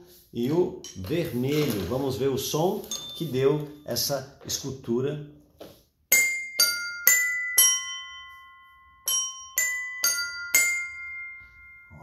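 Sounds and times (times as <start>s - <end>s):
tuned desk bells ringing: 2.8s - 4.0s, 6.1s - 12.0s.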